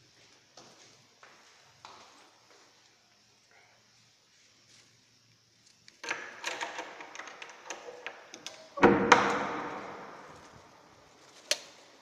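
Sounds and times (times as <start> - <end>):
key unlocking padlock: 6.0 - 8.8
metal clicks and rattles: 6.0 - 10.6.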